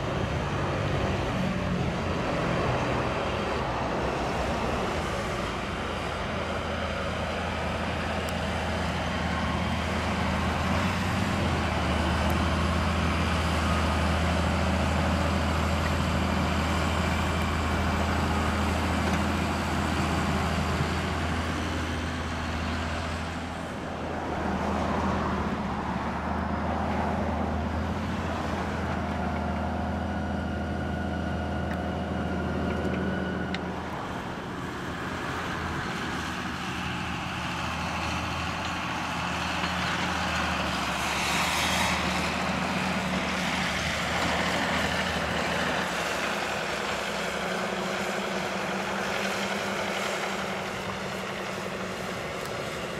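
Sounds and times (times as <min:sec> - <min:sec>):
tractor diesel engine under load: 0:00.0 - 0:52.9.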